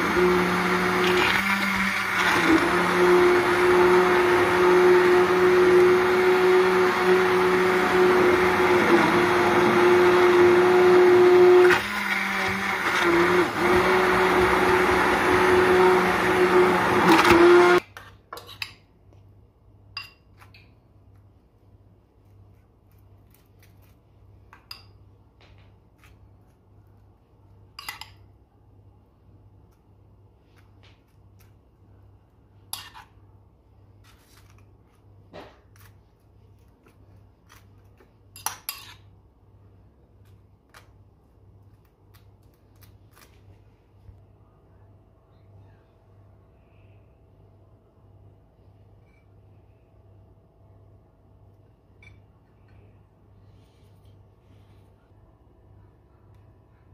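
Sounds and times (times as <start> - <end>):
immersion blender running: 0.0 - 17.8.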